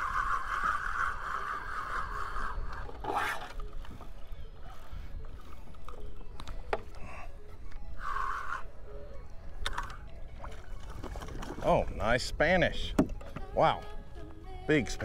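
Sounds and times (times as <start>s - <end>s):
fishing reel whirring: 0.0s - 4.0s, 7.9s - 8.8s
low water and wind rumble: 0.0s - 15.0s.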